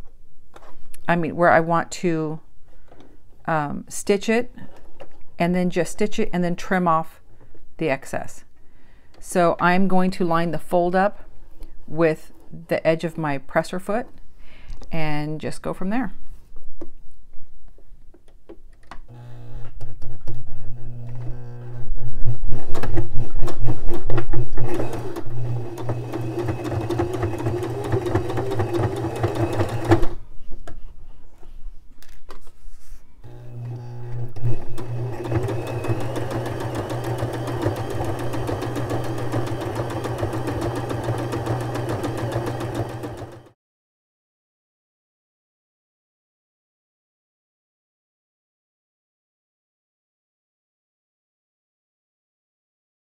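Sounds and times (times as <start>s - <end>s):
electric sewing machine running: 19.1s - 19.8s, 20.6s - 21.9s, 24.6s - 30.2s, 33.2s - 43.6s.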